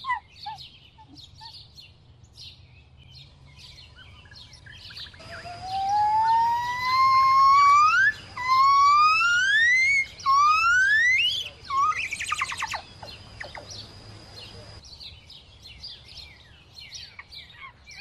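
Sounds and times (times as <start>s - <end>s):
animal whistled call: 5.2s - 12.8s.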